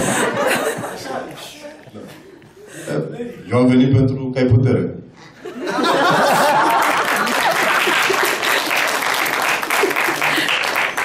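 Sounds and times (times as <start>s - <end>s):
audience applause: 6.2s - 11.0s.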